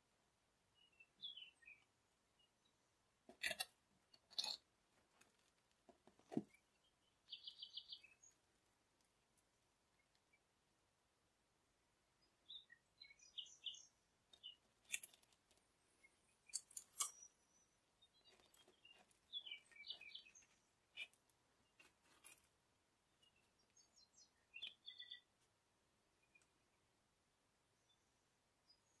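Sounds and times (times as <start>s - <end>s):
faint bird chirps: 0.7s - 3.0s, 6.5s - 8.5s, 12.1s - 15.0s, 15.9s - 21.9s, 23.0s - 25.5s, 27.6s - 29.0s.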